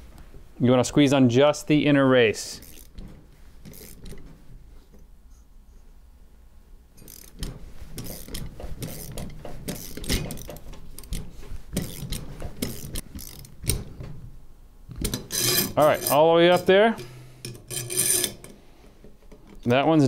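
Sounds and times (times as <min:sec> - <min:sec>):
ratchet wrench clicking: 0:02.6 - 0:03.0, 0:03.6 - 0:04.2, 0:07.0 - 0:13.8, 0:15.1 - 0:16.2, 0:17.4 - 0:18.6.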